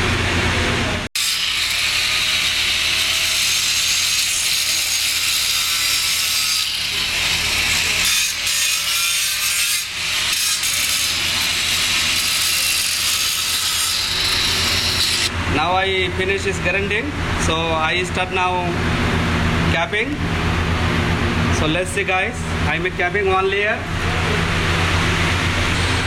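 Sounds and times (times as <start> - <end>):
angle grinder grinding steel: 1.2 - 18.8.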